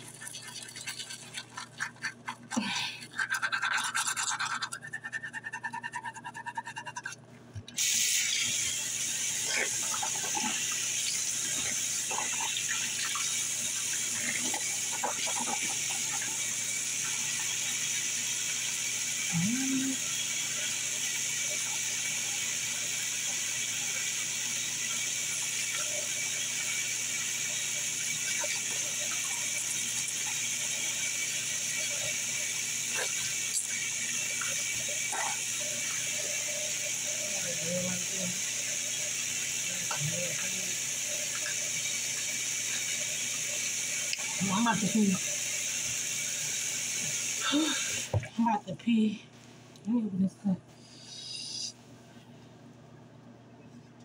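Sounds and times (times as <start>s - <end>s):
toothbrush scrubbing teeth: 0.0s - 7.2s, 9.1s - 18.0s, 23.2s - 46.0s.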